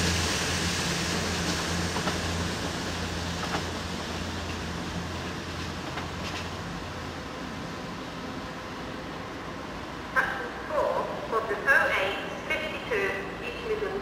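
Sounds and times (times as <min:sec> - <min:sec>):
diesel train engine humming: 0:00.0 - 0:14.0.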